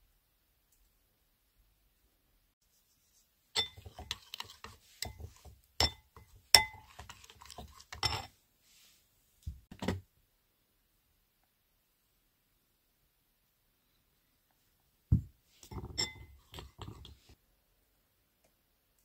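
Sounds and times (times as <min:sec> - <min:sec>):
spoon clinking ceramic bowl: 0:03.6 - 0:08.3, 0:15.7 - 0:17.1.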